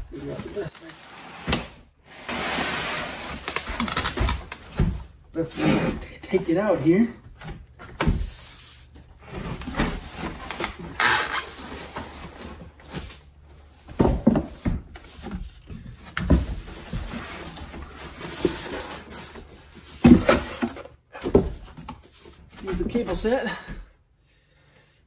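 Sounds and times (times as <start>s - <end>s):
plastic wrap rustling: 0.1s - 1.3s
foam and cardboard scraping: 0.2s - 3.9s.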